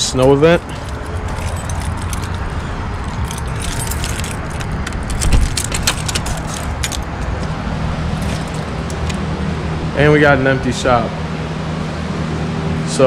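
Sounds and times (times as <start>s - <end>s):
keys jangling and clicking: 0.0s - 9.2s
steady low rumble: 0.0s - 13.0s.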